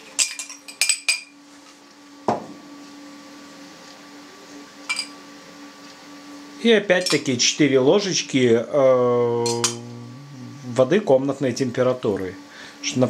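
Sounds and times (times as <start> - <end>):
faint steady hum: 0.0 - 13.0
dull knock: 2.3 - 2.6
spoon clinking on glass: 7.0 - 7.3, 9.4 - 9.8.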